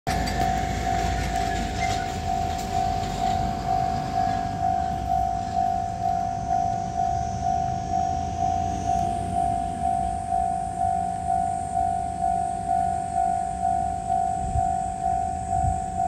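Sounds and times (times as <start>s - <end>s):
level-crossing warning bell ringing: 0.1s - 16.0s.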